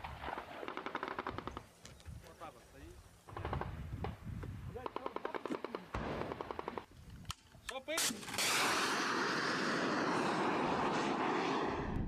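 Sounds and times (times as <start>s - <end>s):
sharp cracks: 0.0s - 1.7s, 4.8s - 11.8s
missile launch blast: 8.2s - 12.0s.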